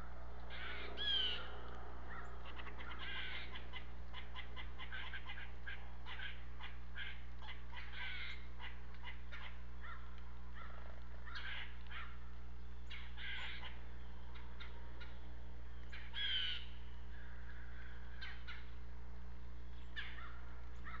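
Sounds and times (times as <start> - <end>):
low electrical hum: 0.0 - 21.0
blue jays harsh calls: 2.1 - 10.0.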